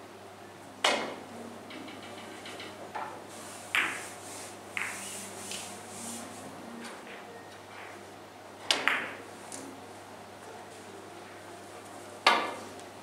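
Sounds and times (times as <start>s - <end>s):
cue tip striking ball: 8.7s - 9.2s.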